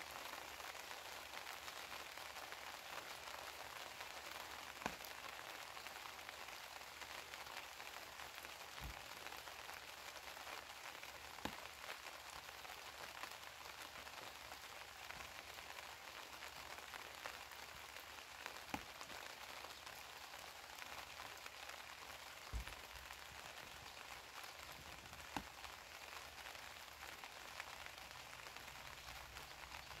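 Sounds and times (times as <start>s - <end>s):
light steady rain: 0.0s - 30.0s
single raindrops landing: 3.9s - 12.0s, 14.9s - 30.0s.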